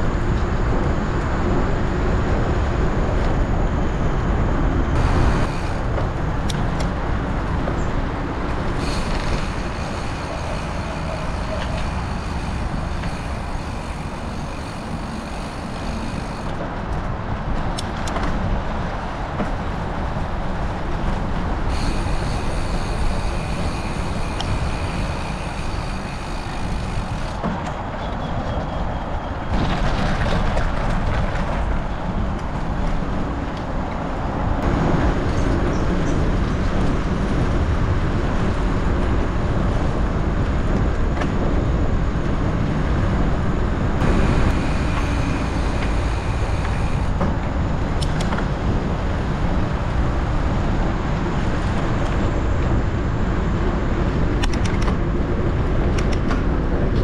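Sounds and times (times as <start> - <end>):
wind rumble: 0.0 - 57.0
bike tyres on rough ground: 4.9 - 53.4
sharp clicks and rattles: 54.4 - 55.0.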